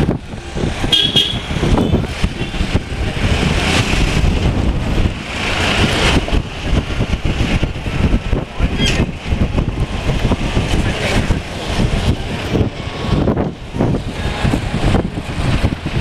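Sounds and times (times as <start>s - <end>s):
street traffic rumble: 0.0s - 16.0s
vehicle horn toot: 0.9s - 2.6s.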